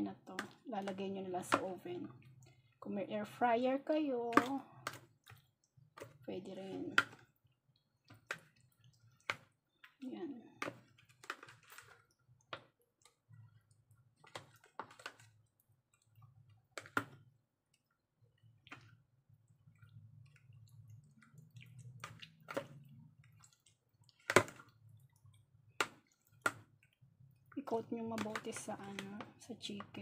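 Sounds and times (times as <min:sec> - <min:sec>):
squelches of coated meat: 0:00.2 - 0:30.0
metal spoon scraping plastic tub: 0:27.6 - 0:30.0.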